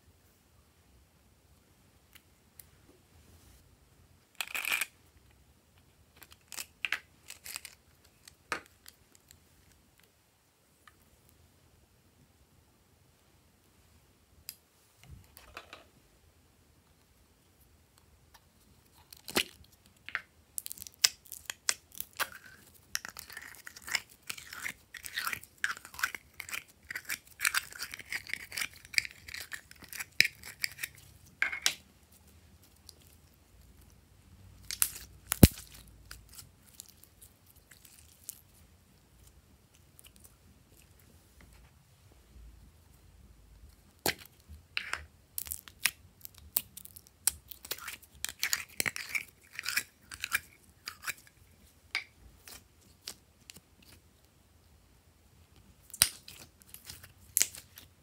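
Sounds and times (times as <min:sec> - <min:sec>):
slime crackling and popping: 0:20.6 - 0:31.0, 0:34.6 - 0:38.5.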